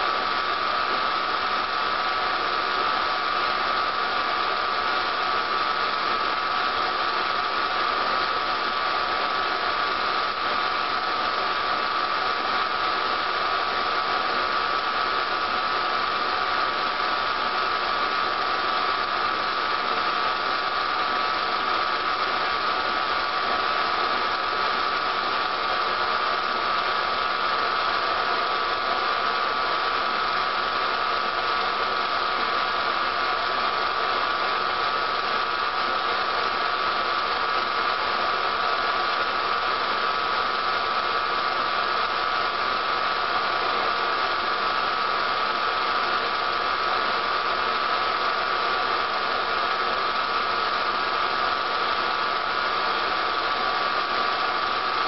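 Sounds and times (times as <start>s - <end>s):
film transfer hiss and hum: 0.0s - 55.0s.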